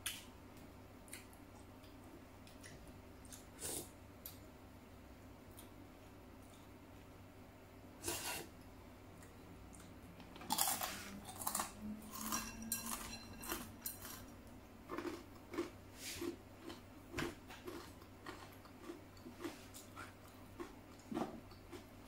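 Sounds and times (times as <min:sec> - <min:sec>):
slurping soup: 0:08.0 - 0:08.5
chewing: 0:09.2 - 0:16.8, 0:17.5 - 0:21.9
chopsticks clinking on bowl: 0:10.5 - 0:14.3.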